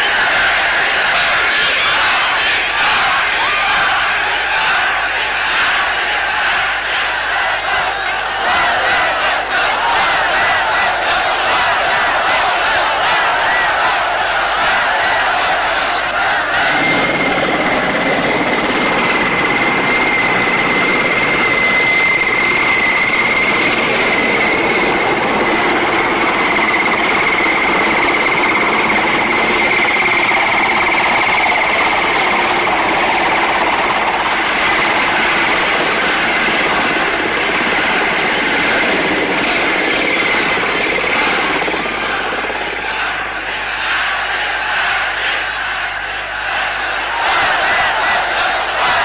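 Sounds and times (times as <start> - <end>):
loud engine noise: 15.2 - 43.8
high-pitched whine: 15.7 - 43.6.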